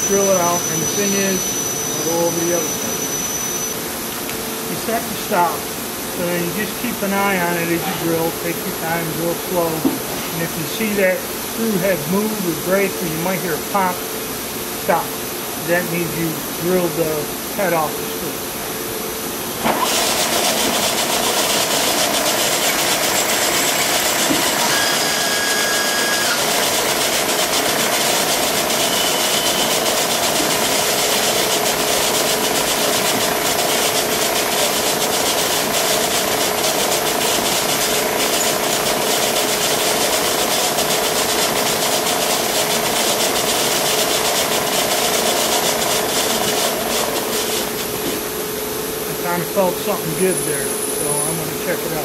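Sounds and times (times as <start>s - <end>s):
drill cutting into steel: 0.0s - 3.8s, 19.7s - 47.8s
high squeals: 0.0s - 3.8s, 24.4s - 26.6s.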